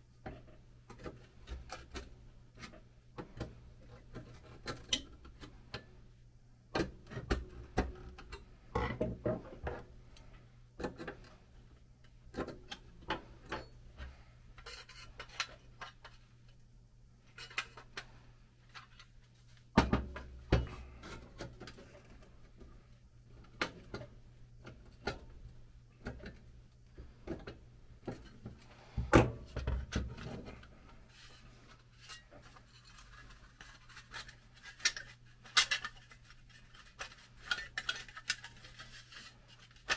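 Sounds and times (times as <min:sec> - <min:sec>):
metal clicks and scrapes: 0:30.2 - 0:39.9.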